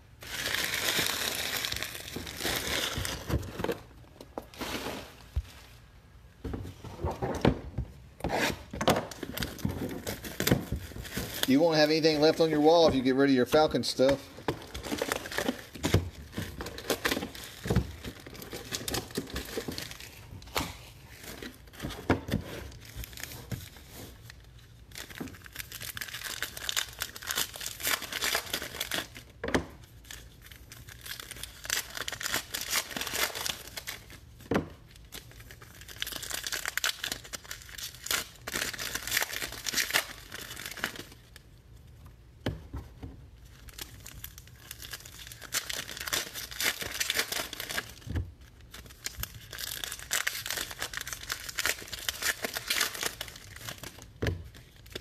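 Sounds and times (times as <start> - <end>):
foil wrappers crinkling and tearing: 0.2 - 3.7, 9.1 - 41.5, 43.4 - 55.0.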